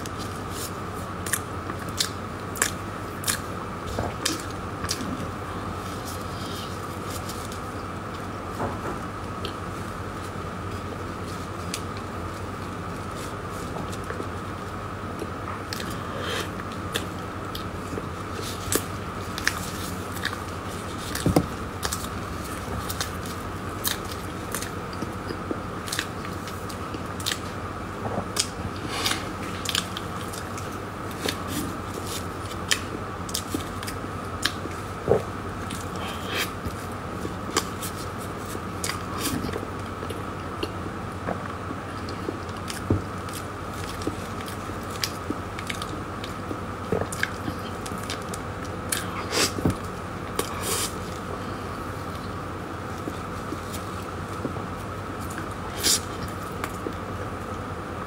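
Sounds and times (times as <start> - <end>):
faint hum: 0.0 - 58.0
moist chewing: 10.2 - 27.5.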